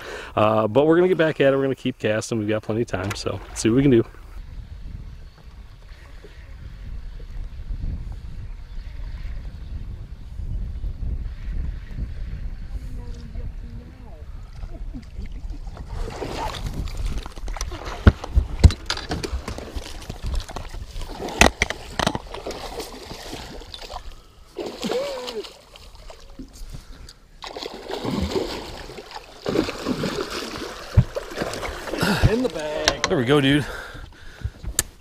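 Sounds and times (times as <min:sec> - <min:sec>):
fish thrashing and water splashing: 0:15.1 - 0:26.6, 0:27.4 - 0:32.8.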